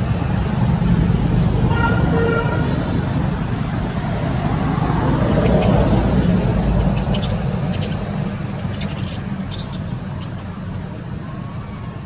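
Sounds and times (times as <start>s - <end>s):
vehicle engine running: 2.9s - 11.2s.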